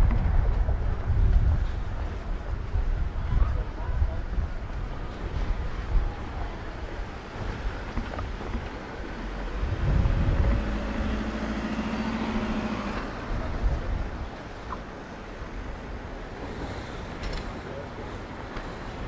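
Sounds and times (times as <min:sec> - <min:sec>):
street traffic noise: 0:04.5 - 0:19.0
motor vehicle passing: 0:09.4 - 0:14.1.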